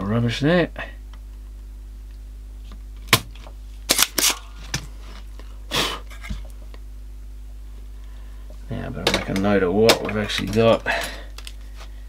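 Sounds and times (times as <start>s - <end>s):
low mains hum: 0.0s - 12.0s
desoldering pump snap: 3.0s - 4.4s.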